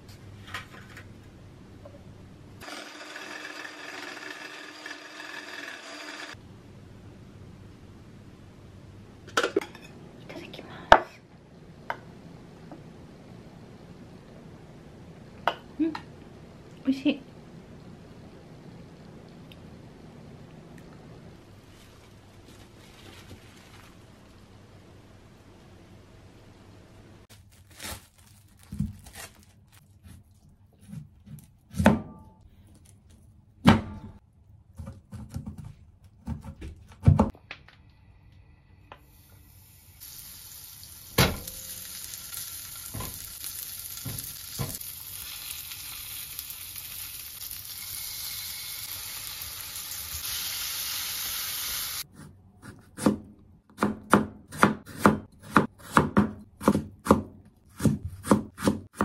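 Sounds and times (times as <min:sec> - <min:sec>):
oil sizzling in frying pan: 0:39.0 - 0:52.1
knife chopping on wooden board: 0:52.6 - 0:59.0.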